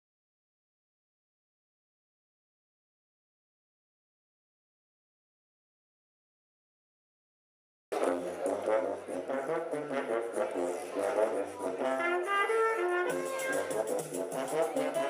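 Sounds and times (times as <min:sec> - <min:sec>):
brass band music: 0:07.9 - 0:15.0.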